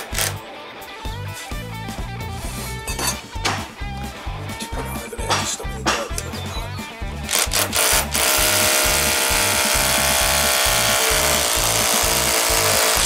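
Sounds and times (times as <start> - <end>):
music with steady beat: 0.0 - 13.0
hammer drill boring into brick: 7.3 - 13.0.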